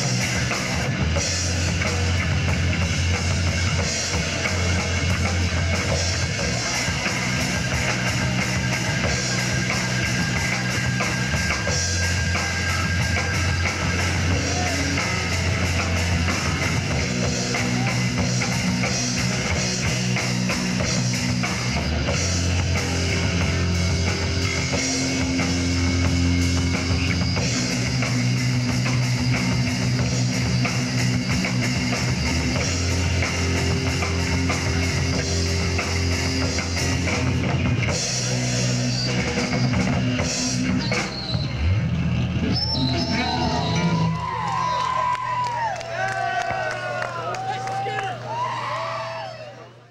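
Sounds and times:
live rock band playing: 0.0 - 45.7.

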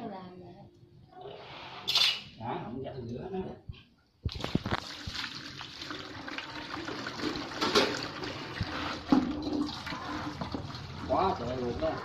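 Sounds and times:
water splashing into plastic basin: 4.2 - 11.2.

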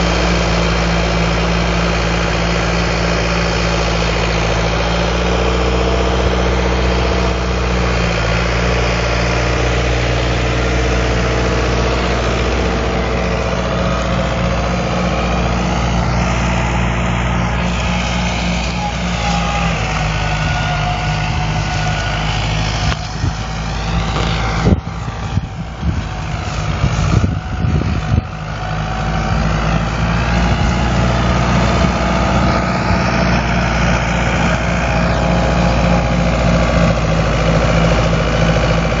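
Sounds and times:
tractor diesel engine running: 0.0 - 39.0.

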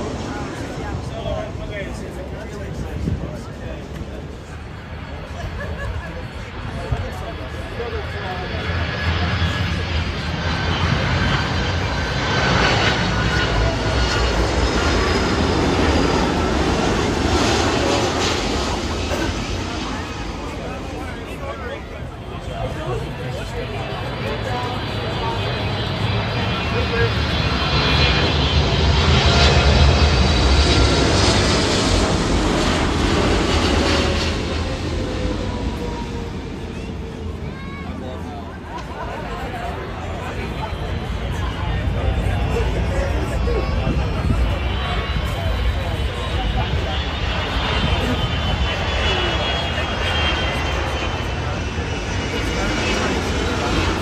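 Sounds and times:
jet engines rumbling with whine: 0.0 - 54.0.

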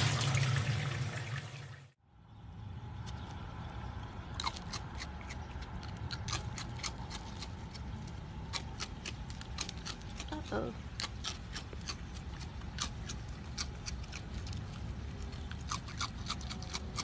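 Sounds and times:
animal crunching cereal: 3.6 - 17.0.

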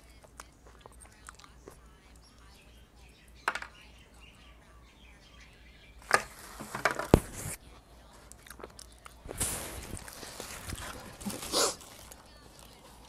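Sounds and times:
thin plastic crinkling: 8.3 - 13.0.

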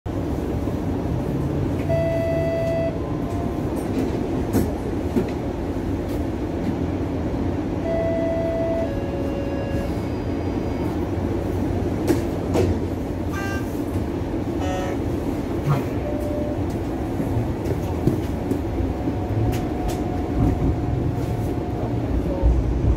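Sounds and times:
streetcar rumbling on rails: 0.0 - 22.9
short steady tones: 13.3 - 13.8.

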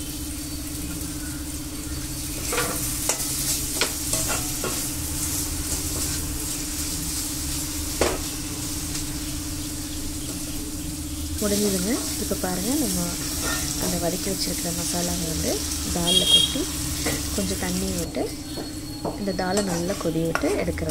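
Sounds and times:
vegetables sizzling in a pan: 0.0 - 20.9.

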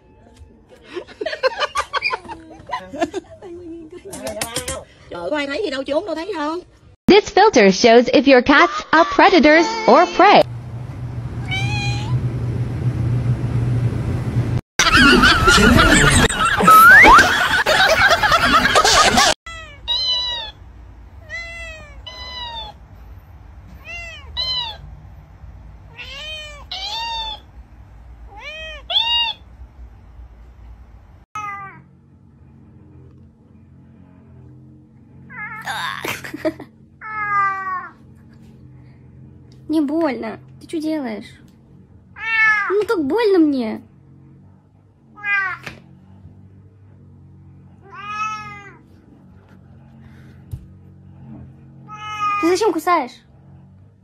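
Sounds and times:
kitten meowing: 11.4 - 12.1, 19.5 - 20.6, 21.2 - 22.8, 23.8 - 24.8, 26.0 - 27.4, 28.4 - 29.4
kitten crying: 11.4 - 12.2, 19.5 - 20.6, 21.2 - 22.8, 23.8 - 24.8, 25.9 - 27.5, 28.3 - 29.4, 47.8 - 48.8, 51.9 - 52.6.

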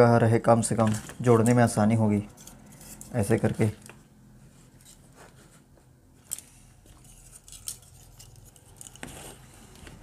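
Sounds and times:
plastic fans clicking and tapping: 0.6 - 4.1.

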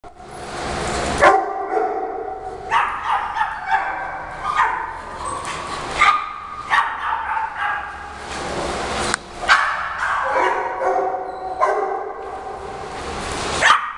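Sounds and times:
dogs barking: 1.1 - 8.5, 9.4 - 13.9.

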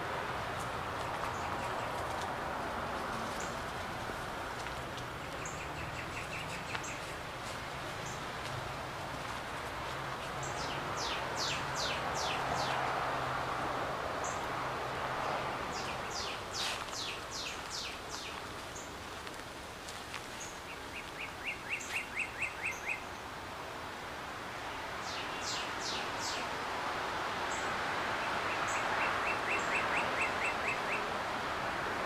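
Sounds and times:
background hiss: 0.0 - 32.0
birds singing whistles: 20.7 - 23.1, 28.5 - 31.1.

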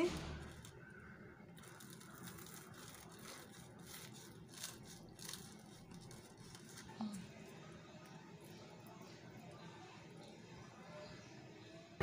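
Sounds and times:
knife crunching through crust: 1.5 - 7.0.

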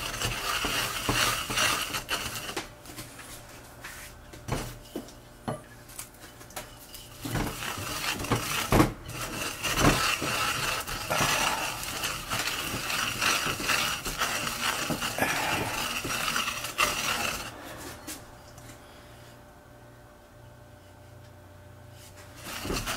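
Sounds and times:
pestle grinding seeds in mortar: 0.0 - 3.0, 6.4 - 18.4, 22.1 - 22.9.

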